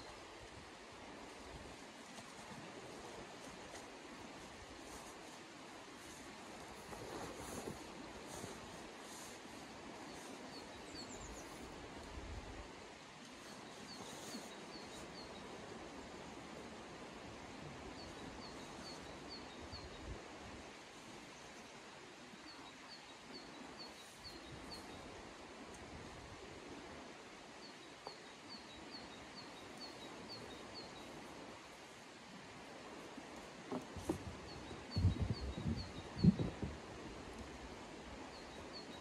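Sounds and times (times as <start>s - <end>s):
river flowing: 0.0s - 34.9s, 36.8s - 39.0s
songbird chirping: 13.2s - 15.6s, 27.6s - 32.0s.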